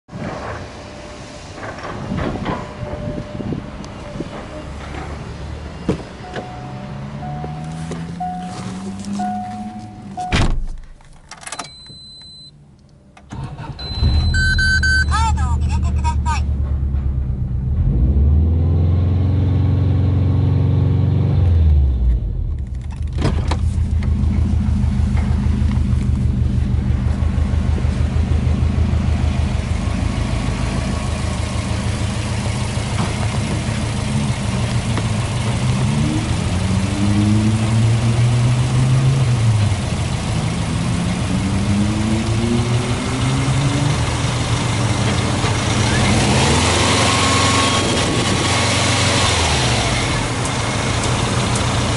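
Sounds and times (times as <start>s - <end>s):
car engine revving: 15.8s - 51.9s
car engine idling: 22.2s - 36.7s, 37.9s - 46.2s, 50.0s - 51.9s.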